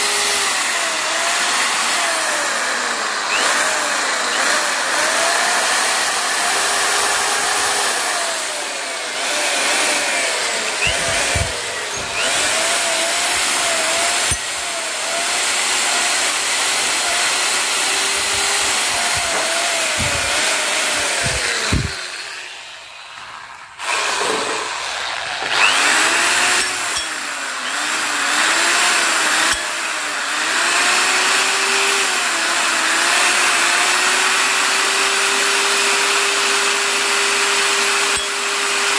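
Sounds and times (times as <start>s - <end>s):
drill wire brush scrubbing metal: 0.0s - 38.9s.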